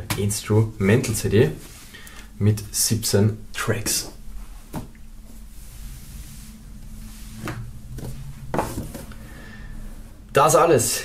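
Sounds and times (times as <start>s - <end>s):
items rubbing: 4.5s - 9.3s.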